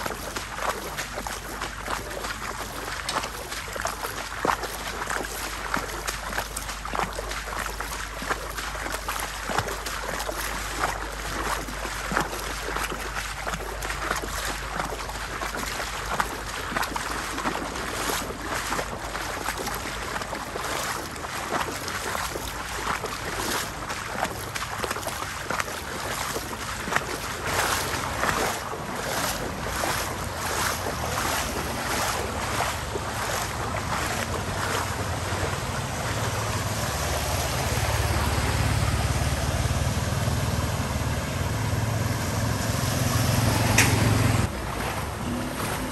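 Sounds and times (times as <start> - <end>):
water sloshing with wading steps: 0.0 - 45.9
motorbike engine hum: 33.8 - 45.9.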